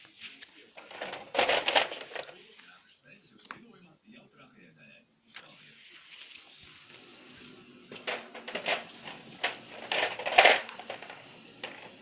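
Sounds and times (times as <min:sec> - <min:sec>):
plastic toys clattering: 0:00.8 - 0:02.4, 0:07.9 - 0:12.0.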